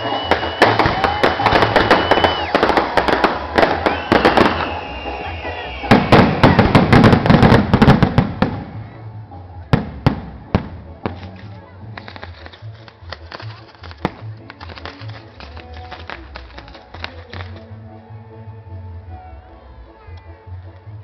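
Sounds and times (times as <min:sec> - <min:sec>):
fireworks whistling: 0:00.0 - 0:08.8
fireworks bangs: 0:00.0 - 0:08.9, 0:09.7 - 0:17.6
fireworks crackling and popping: 0:00.0 - 0:08.9, 0:09.7 - 0:17.8.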